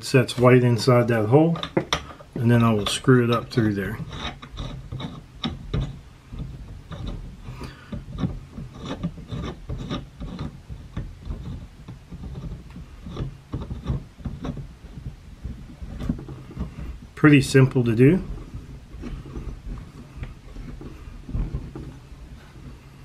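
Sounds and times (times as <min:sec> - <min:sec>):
wooden rubbing and small knocks: 0:00.3 - 0:23.0.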